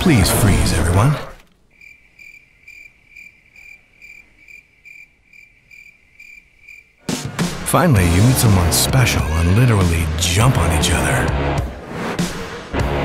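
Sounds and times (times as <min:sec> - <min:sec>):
cricket chirping: 0:01.6 - 0:07.1.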